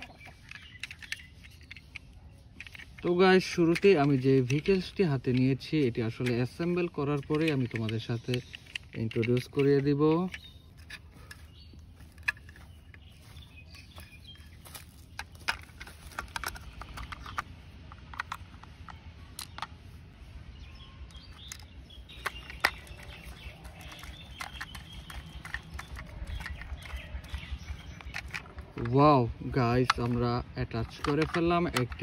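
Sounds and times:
plastic toy parts clicking: 0.0 - 12.6, 14.7 - 19.8, 21.1 - 32.0
birds chirping: 0.0 - 32.0.

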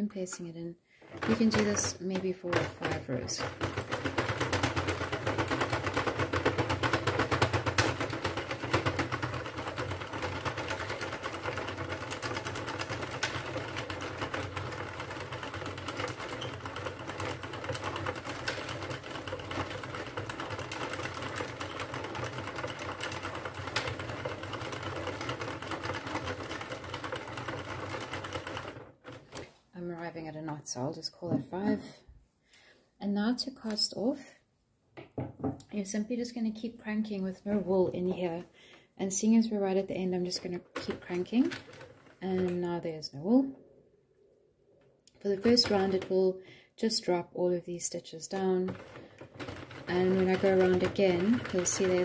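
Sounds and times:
knitting machine needles clicking: 0.2 - 29.5, 39.1 - 42.8, 45.0 - 46.3, 48.2 - 52.0.

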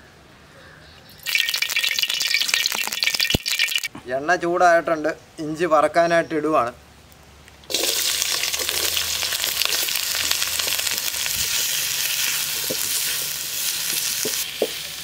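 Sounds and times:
ginger sizzling in hot oil: 1.2 - 3.9, 7.7 - 15.0.

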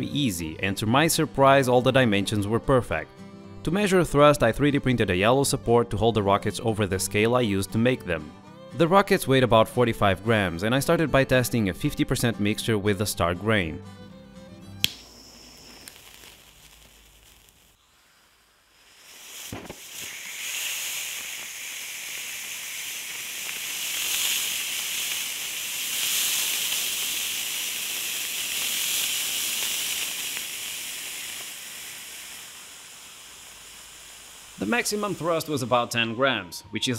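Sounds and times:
rocket motor hissing rush: 14.8 - 35.8.

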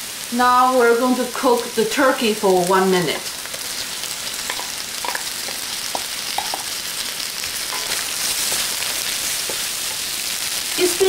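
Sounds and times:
meat sizzling in hot oil: 0.0 - 11.0
wooden spatula scraping metal: 7.7 - 10.2.

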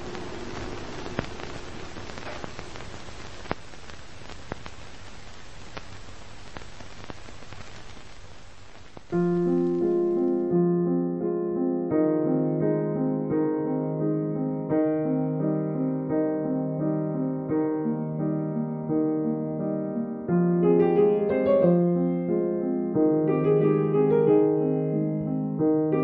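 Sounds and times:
film surface hiss: 0.0 - 11.0, 11.9 - 26.0
clicks and pops: 1.0 - 4.8
piano tune: 9.1 - 26.0.

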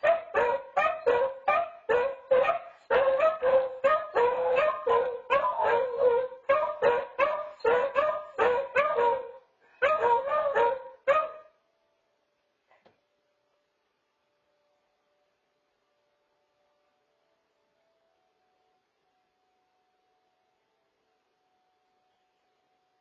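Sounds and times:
dogs baying and yelping: 0.0 - 11.4.

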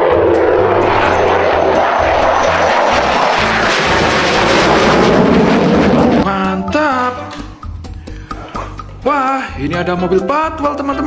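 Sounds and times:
fighter jet flying past: 0.0 - 6.3.

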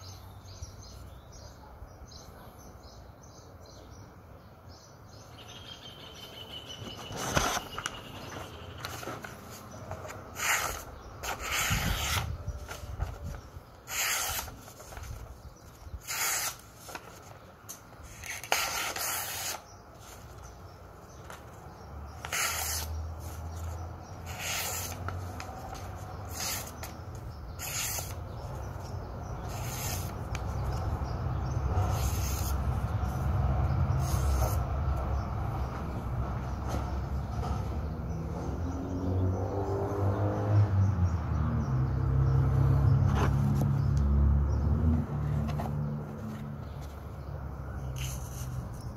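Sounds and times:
knife blade slicing paper: 8.8 - 20.4, 22.2 - 30.9, 31.7 - 32.8, 34.0 - 34.7, 47.9 - 48.8.

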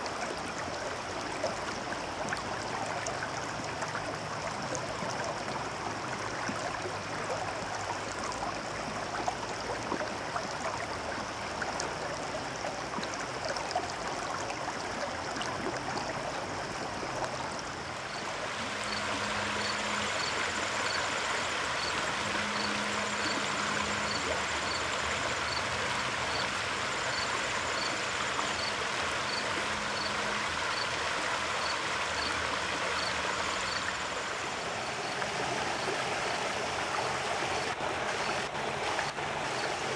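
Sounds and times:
river rushing over stones: 12.6 - 39.9.

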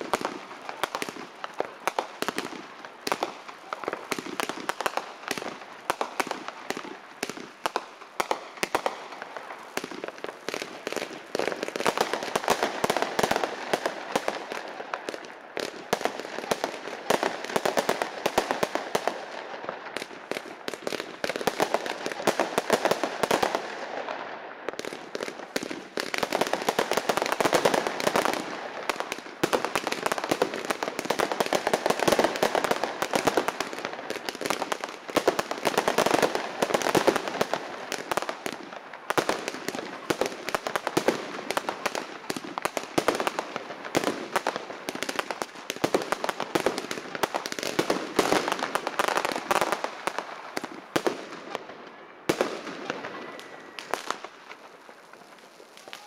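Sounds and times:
fireworks bangs and crackling: 0.0 - 56.0.

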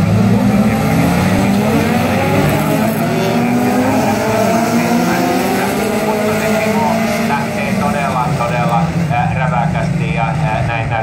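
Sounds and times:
race car engines revving: 0.0 - 11.0.

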